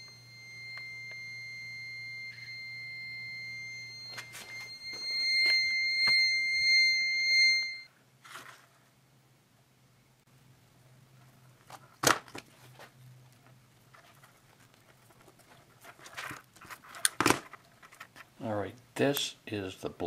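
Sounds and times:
high-pitched multimeter beep: 0.0s - 7.9s.

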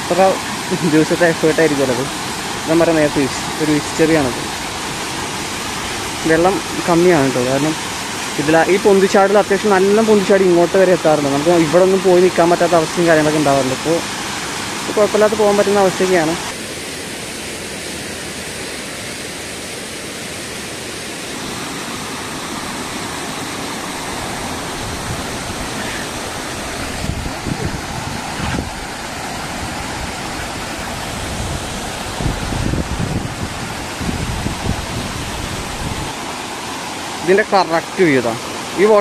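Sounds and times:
stream rushing over rocks: 0.0s - 39.0s
microphone bumps: 27.0s - 28.8s.

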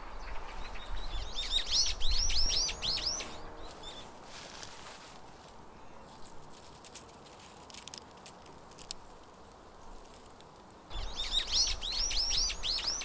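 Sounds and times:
small bird chirping: 0.0s - 4.2s, 10.9s - 13.0s
wind rumble on microphone: 0.0s - 4.2s
dry seeds crackling in fingers: 3.2s - 13.0s.

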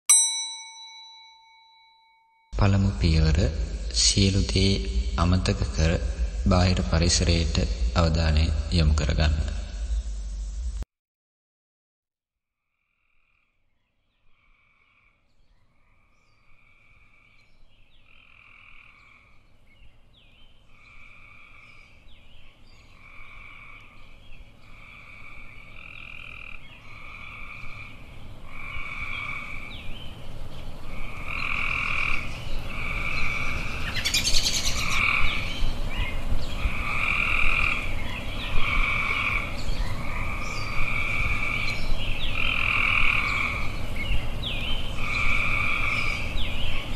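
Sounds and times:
low steady background noise: 2.6s - 10.8s, 14.4s - 46.9s
frogs calling in chorus: 24.6s - 29.8s, 30.9s - 35.6s, 36.6s - 43.9s, 45.0s - 46.9s.

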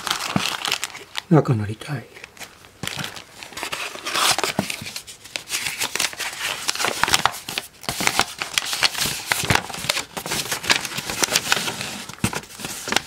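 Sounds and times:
paper rustling and crinkling: 0.0s - 1.3s, 2.1s - 13.0s.

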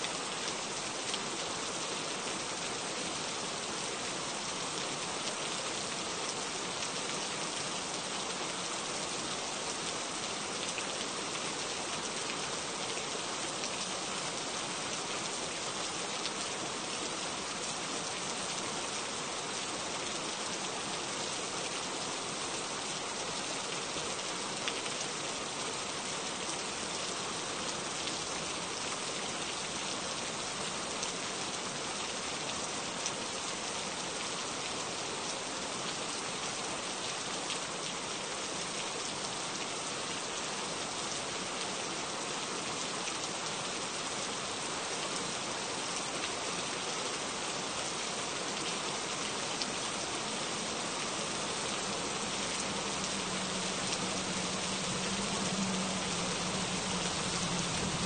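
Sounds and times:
rain hissing: 49.9s - 58.0s.

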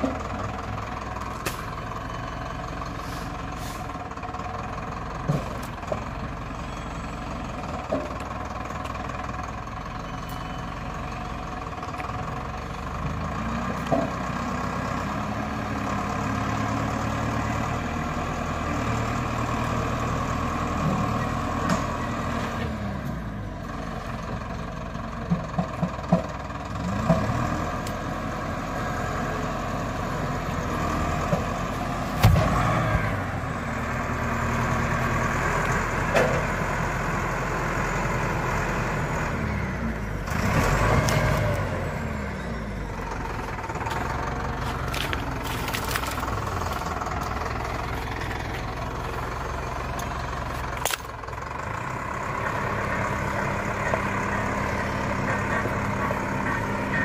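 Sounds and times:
tractor diesel engine running: 0.0s - 57.0s
heavy log thud: 32.2s - 32.6s.

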